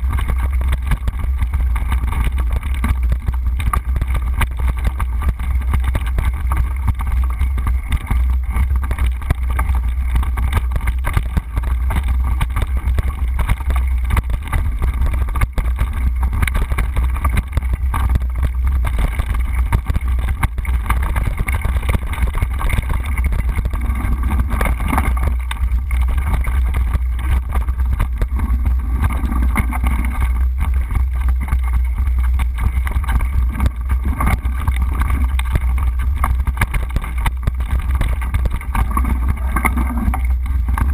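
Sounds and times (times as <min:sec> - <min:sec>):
bike rattling over rough trail: 0:00.0 - 0:40.9.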